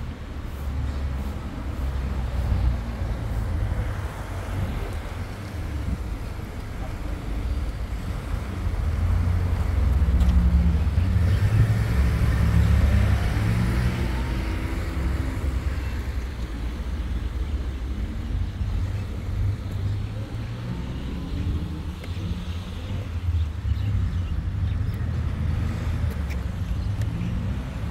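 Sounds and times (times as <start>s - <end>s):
road traffic hum: 0.0s - 27.9s
vehicle passing: 7.2s - 17.4s.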